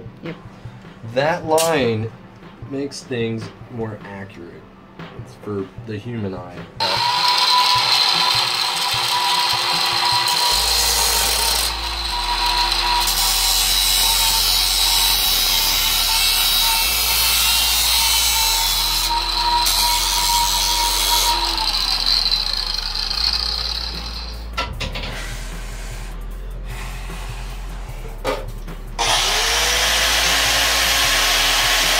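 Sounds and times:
angle grinder whining: 6.8s - 26.2s, 29.0s - 31.9s.

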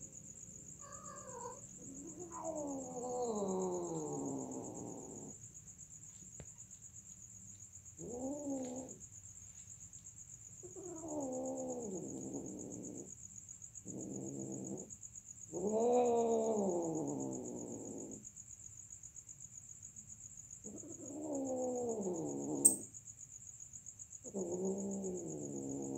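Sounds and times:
cats yowling: 0.8s - 5.3s, 8.0s - 9.0s, 10.6s - 13.1s, 20.7s - 22.8s, 24.2s - 25.9s.

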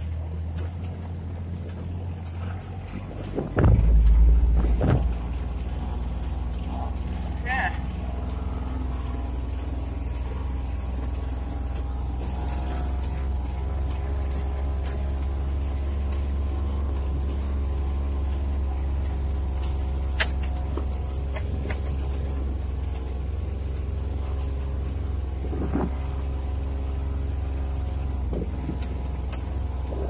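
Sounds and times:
farm vehicle engine running: 0.0s - 30.0s
sharp clicks and knocks: 1.6s - 5.9s.

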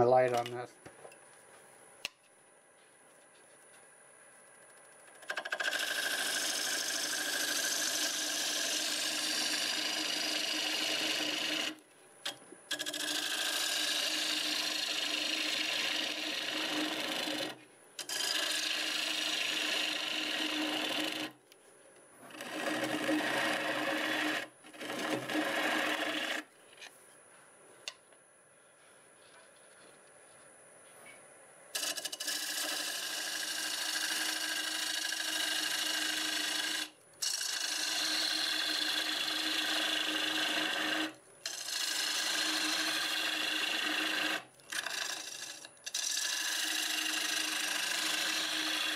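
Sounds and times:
gouge cutting wood on lathe: 5.2s - 11.8s, 12.7s - 21.4s, 22.3s - 26.4s, 31.8s - 48.9s.

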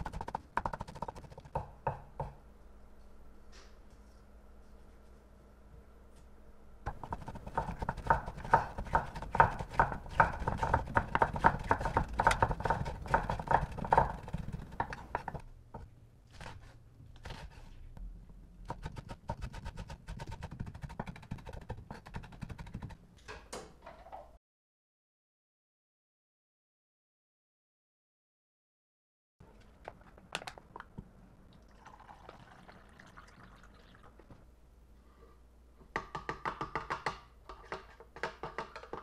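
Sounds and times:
knife chopping on wooden board: 6.9s - 15.4s.

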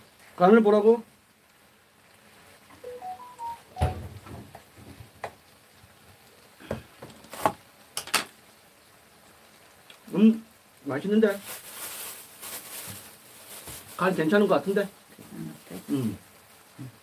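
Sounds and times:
soft thump: 3.8s - 4.5s.

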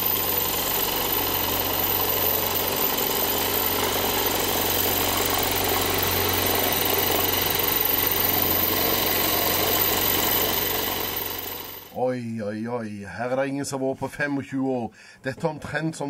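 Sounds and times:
drill boring into metal: 0.0s - 11.9s.

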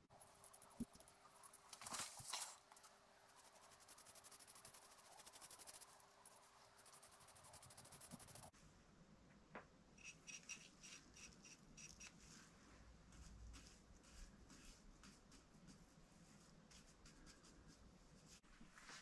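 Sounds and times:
paintbrush strokes on metal: 3.2s - 8.5s, 10.0s - 19.0s.

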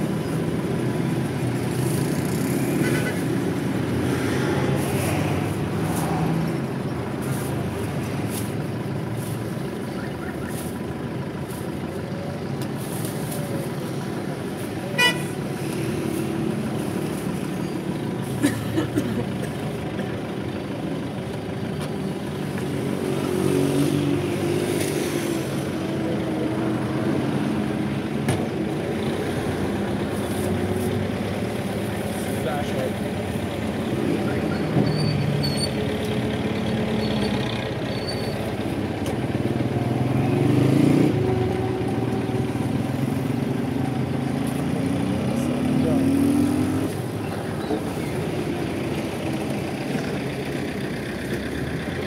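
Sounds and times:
motor vehicle running: 0.0s - 52.0s
horn toot: 14.9s - 15.4s.

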